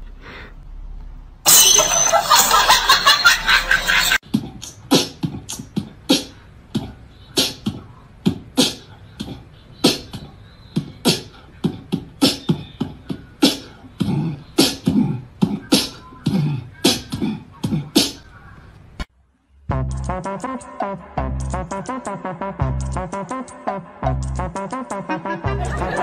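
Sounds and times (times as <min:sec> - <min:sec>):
human beatboxing: 0:04.2 - 0:18.3, 0:19.7 - 0:26.0.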